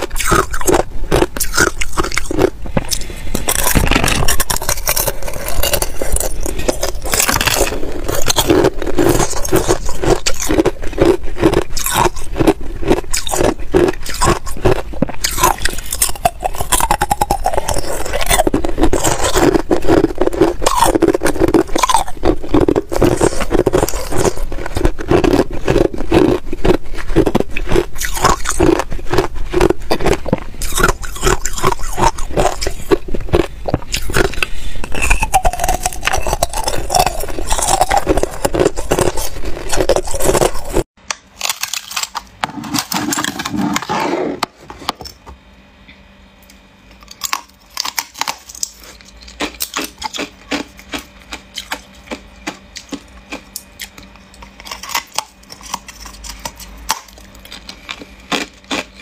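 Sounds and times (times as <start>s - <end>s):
ice crunched in the mouth: 0.1s - 22.1s
ice block scraping in plastic container: 42.4s - 44.4s.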